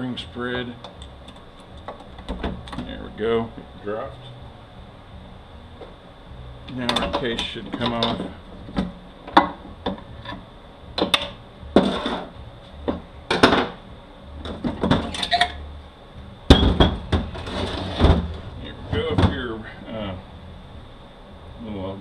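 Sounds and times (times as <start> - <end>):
metal knocks and clanks: 14.4 - 15.6, 16.5 - 19.5.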